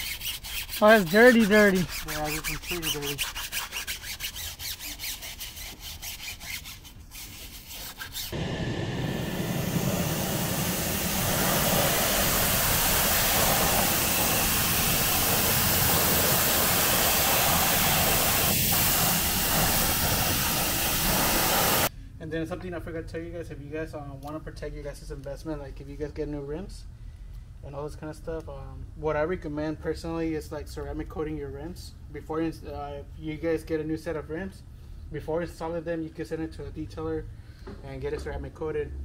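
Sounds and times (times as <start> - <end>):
cloth rubbing car wheel: 0.0 - 8.4
loud steady rushing hiss: 8.3 - 21.9.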